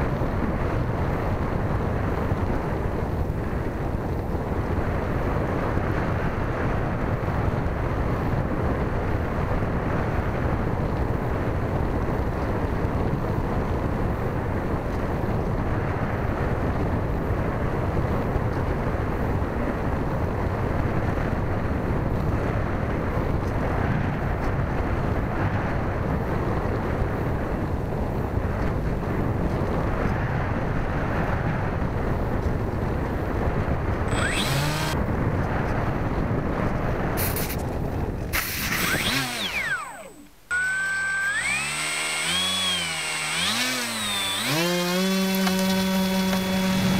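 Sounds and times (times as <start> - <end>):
wind rushing over microphone: 0.0 - 40.3, 41.2 - 46.9
short rising whine: 38.6 - 44.7.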